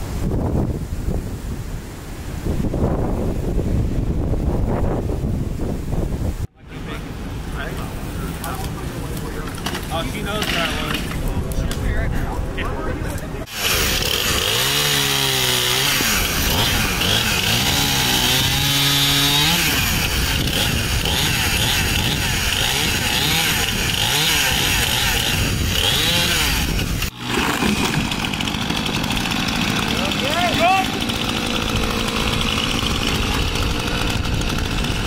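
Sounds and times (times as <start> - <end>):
chainsaw cutting through limbs: 8.3 - 11.8, 13.4 - 35.0
low steady engine: 26.6 - 35.0.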